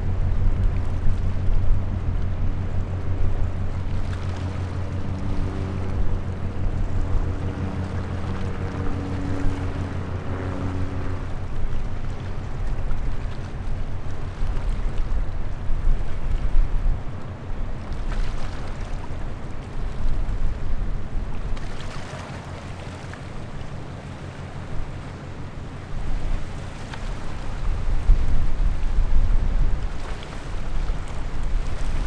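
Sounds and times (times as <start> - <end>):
ship diesel engines droning: 0.0 - 14.4, 22.1 - 27.9
wind buffeting microphone: 0.0 - 21.6, 25.7 - 32.0.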